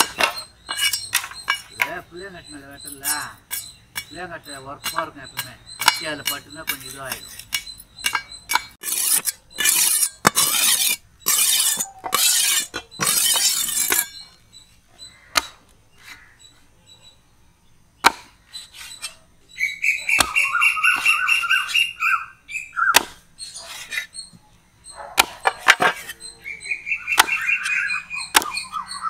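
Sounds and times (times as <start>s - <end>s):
bird chirping: 0.0s - 29.0s
knife rasping on a whetstone: 8.8s - 14.1s.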